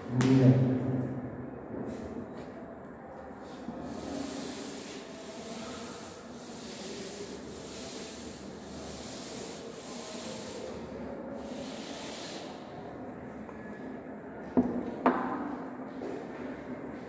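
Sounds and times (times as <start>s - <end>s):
duster rubbing on chalkboard: 3.8s - 12.6s.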